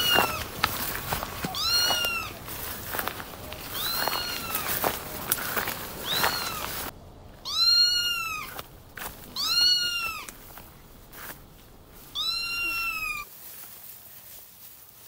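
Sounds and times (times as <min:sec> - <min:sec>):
kitten meowing: 0:00.0 - 0:00.4, 0:01.5 - 0:02.4, 0:03.7 - 0:04.7, 0:06.0 - 0:06.7, 0:07.4 - 0:08.6, 0:09.4 - 0:10.3, 0:12.1 - 0:13.2.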